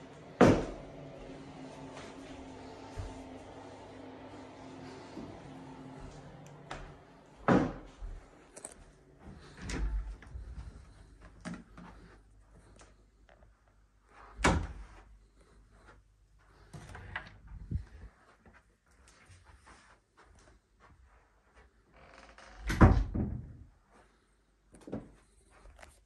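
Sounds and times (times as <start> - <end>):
doors knocking and thumping: 0.4 - 0.8, 7.4 - 7.9.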